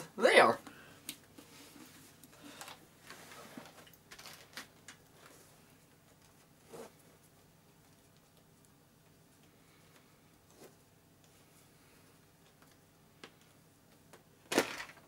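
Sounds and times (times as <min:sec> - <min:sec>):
helmet rustling: 0:01.4 - 0:07.4.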